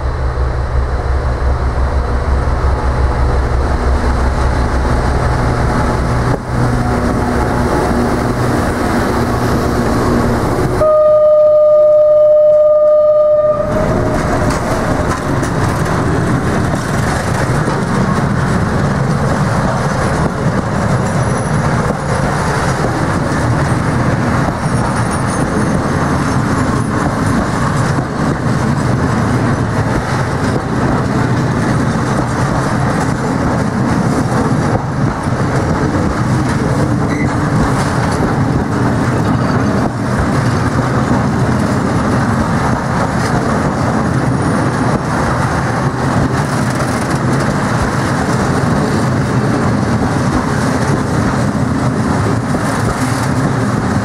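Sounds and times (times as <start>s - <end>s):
train wheels clattering on rails: 12.2s - 54.0s.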